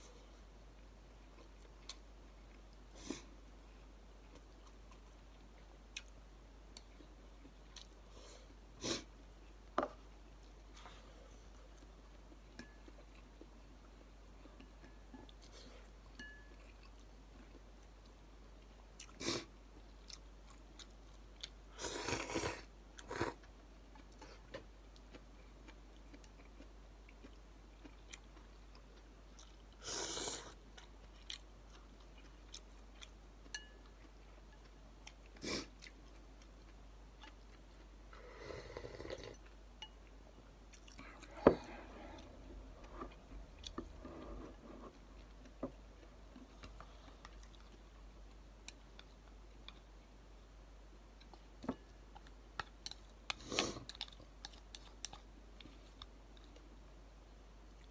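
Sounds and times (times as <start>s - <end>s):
person chewing: 19.0s - 50.0s, 52.1s - 56.7s.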